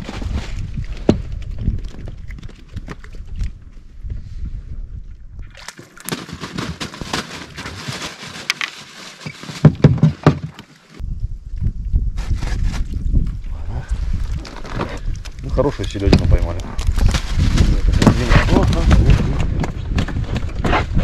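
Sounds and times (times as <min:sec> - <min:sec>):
wind rumble on microphone: 0:00.0 - 0:05.6, 0:11.0 - 0:21.0
knocking and rattling in a boat: 0:06.0 - 0:08.2, 0:09.3 - 0:10.7, 0:15.6 - 0:21.0.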